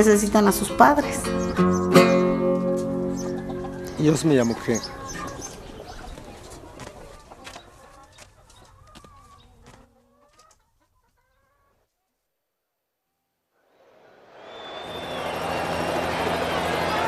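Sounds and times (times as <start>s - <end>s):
chickens clucking: 0.4s - 12.1s.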